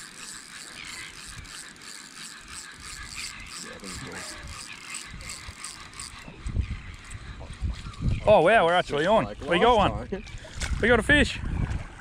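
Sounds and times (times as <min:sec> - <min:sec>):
fishing reel ratchet ticking: 0:00.0 - 0:07.6.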